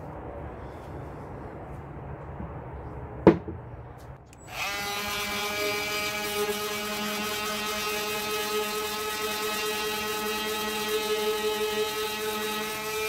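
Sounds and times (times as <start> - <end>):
electric sander sanding wood: 4.4 - 13.0.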